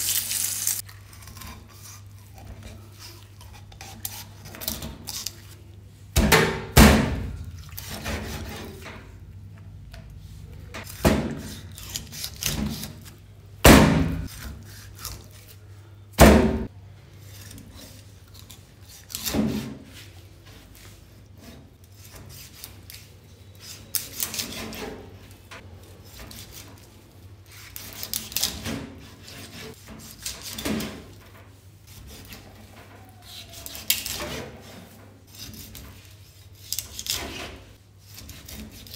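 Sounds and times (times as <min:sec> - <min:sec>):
blade scraping flesh and board: 0:07.6 - 0:08.8, 0:10.8 - 0:13.2, 0:35.3 - 0:38.9.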